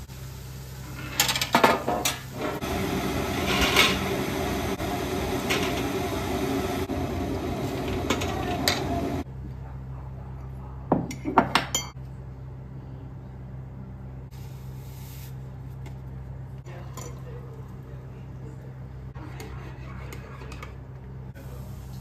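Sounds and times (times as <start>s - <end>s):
hot oil sizzling: 0.0s - 9.2s, 14.3s - 15.5s, 21.4s - 22.0s.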